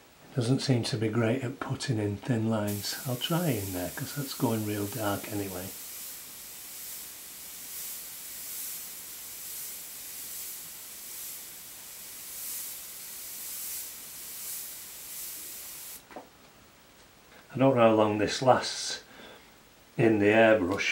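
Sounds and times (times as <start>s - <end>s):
airbrush air hiss: 2.7s - 16.0s.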